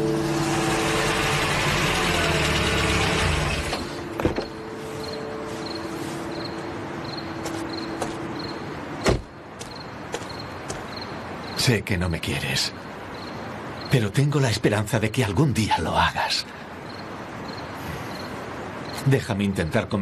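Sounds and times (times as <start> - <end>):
car engine running: 0.0 - 4.4
car door slamming: 9.0 - 9.3.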